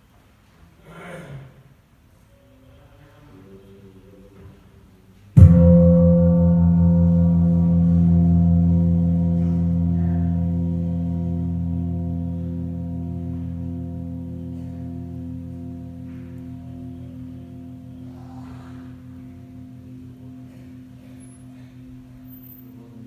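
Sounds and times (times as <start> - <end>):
large metal temple bell ringing: 5.4 - 23.0.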